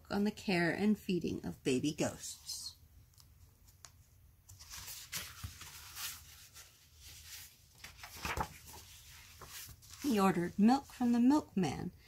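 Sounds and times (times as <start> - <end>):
book pages rustling: 3.0 - 10.6.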